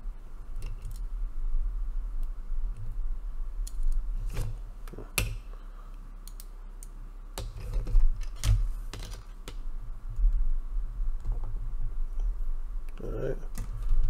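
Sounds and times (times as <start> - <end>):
faint low hum: 0.0 - 14.0
plastic parts clicking: 6.2 - 9.6.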